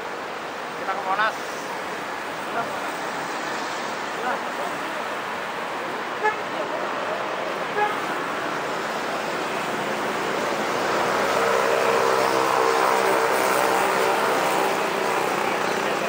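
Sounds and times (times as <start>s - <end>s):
road traffic noise: 0.0s - 16.0s
engine passing close: 8.2s - 16.0s.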